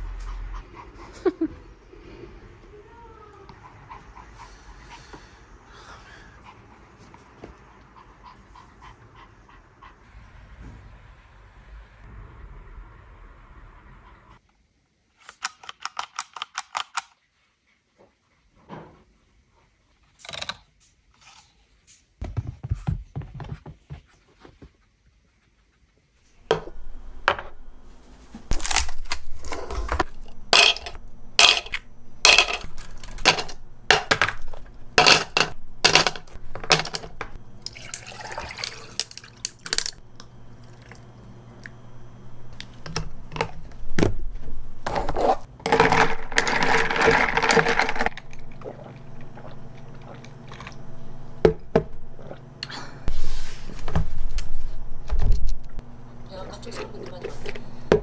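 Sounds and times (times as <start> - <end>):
ice cubes clinking into glass: 30.6 - 40.0, 45.7 - 48.2
liquid pouring over ice: 37.6 - 39.9.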